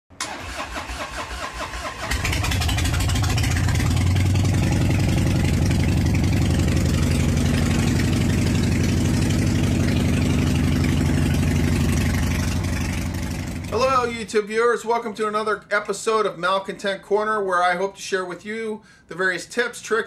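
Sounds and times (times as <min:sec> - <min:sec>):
engine starter cranking: 0:00.2 - 0:04.3
engine running: 0:00.2 - 0:14.1.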